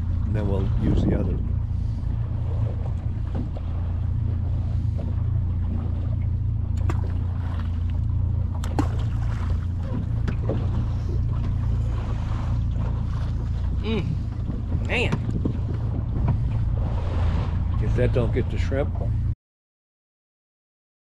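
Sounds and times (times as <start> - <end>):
low wind rumble on microphone: 0.0 - 19.4
bait splashing into water: 6.7 - 9.7.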